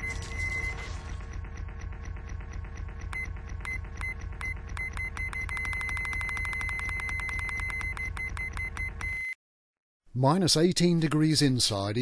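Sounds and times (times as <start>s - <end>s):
steady low hum: 0.0s - 9.2s
electronic beeps: 3.0s - 9.4s.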